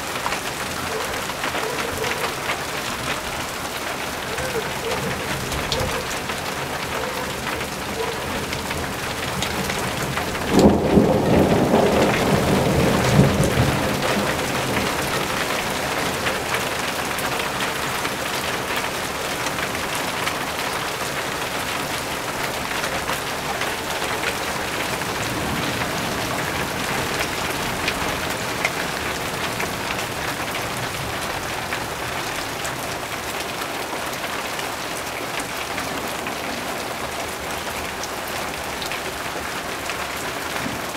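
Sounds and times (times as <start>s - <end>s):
steady rain: 0.0s - 40.9s
thunder rumbling: 7.0s - 16.2s.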